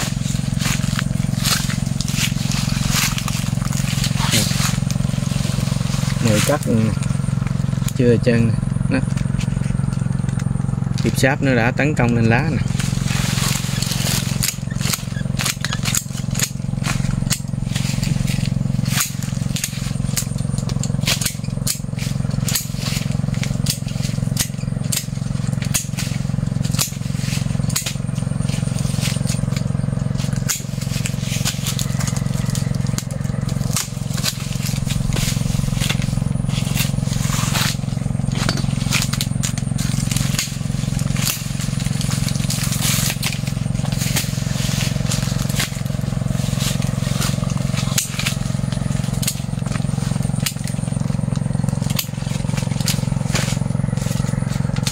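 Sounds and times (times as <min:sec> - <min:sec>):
dry branches cracking and rustling: 0:00.0 - 0:54.9
low engine drone: 0:00.0 - 0:54.9
pruning shears snipping: 0:00.0 - 0:54.9.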